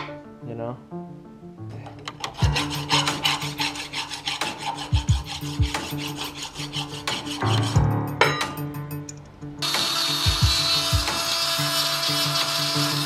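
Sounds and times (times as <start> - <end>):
hand file rasping on steel: 2.1 - 7.8, 9.9 - 13.0.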